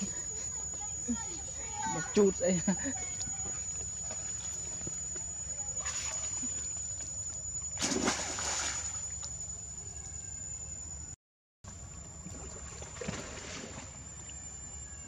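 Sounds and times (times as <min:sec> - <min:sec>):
water splashing and sloshing: 0:05.8 - 0:06.8, 0:07.8 - 0:09.3, 0:12.2 - 0:14.0.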